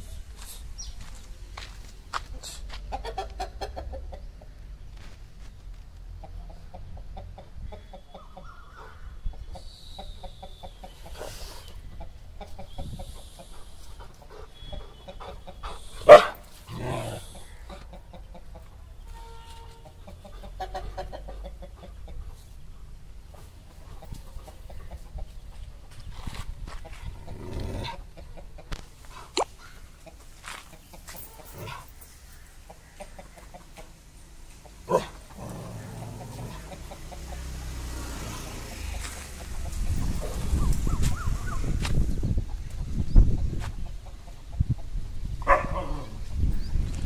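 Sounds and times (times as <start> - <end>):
chickens clucking: 2.3 - 4.7, 6.0 - 19.1, 19.7 - 46.6.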